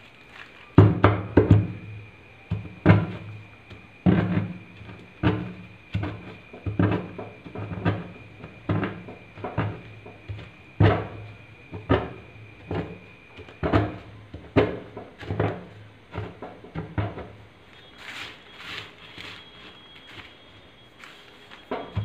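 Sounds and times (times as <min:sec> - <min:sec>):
soft hissy crumbling: 0:00.0 - 0:22.0
chalk crunching by hand: 0:18.0 - 0:20.3.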